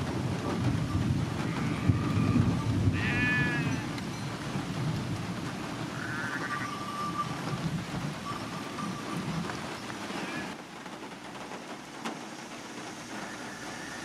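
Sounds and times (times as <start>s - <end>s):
rolling thunder: 0.0s - 9.9s
steady rain: 0.0s - 14.0s
high animal call: 5.9s - 7.5s, 10.0s - 10.6s, 13.0s - 14.0s.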